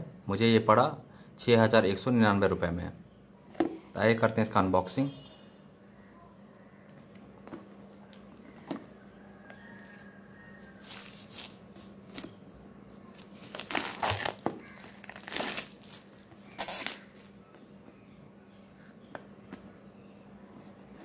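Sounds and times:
plastic wrap crinkling: 0:10.6 - 0:12.4, 0:13.0 - 0:17.4.

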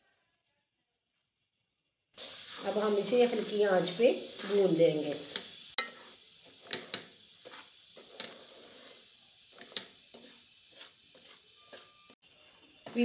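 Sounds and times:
wooden spatula scraping a pan: 0:02.2 - 0:12.2.

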